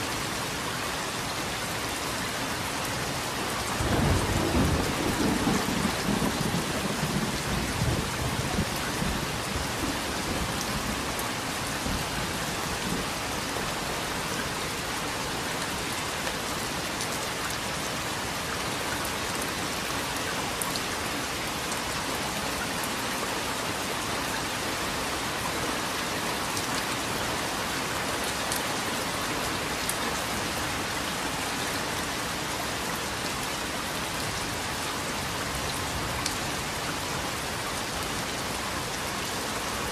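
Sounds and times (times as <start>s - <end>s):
steady rain: 0.0s - 39.9s
low rumble of thunder: 3.7s - 10.6s.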